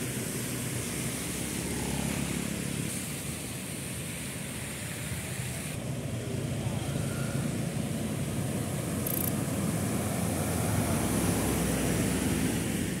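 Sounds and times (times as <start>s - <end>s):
traffic on wet road: 0.0s - 13.0s
motorcycle passing: 1.0s - 2.9s, 6.7s - 13.0s
truck passing: 5.8s - 13.0s.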